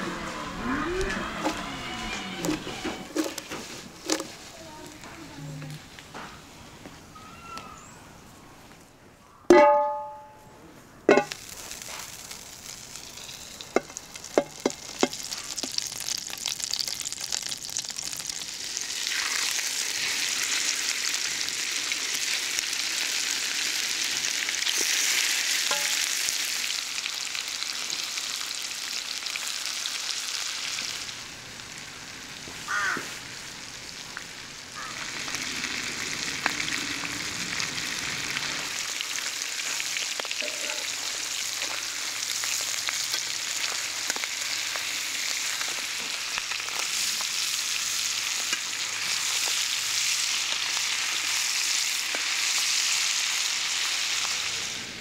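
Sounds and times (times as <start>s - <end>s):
metal clank: 9.5s - 10.4s, 11.1s - 11.4s, 25.7s - 26.0s
fish sizzling in frying pan: 11.2s - 55.0s.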